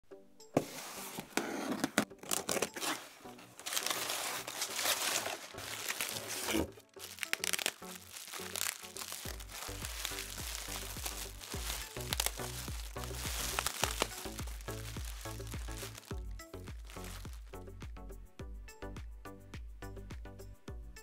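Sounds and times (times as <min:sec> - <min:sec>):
background music with bass: 0:00.0 - 0:21.0
bubble wrap crinkling: 0:01.2 - 0:17.6
crumpled paper crinkling: 0:01.4 - 0:17.5.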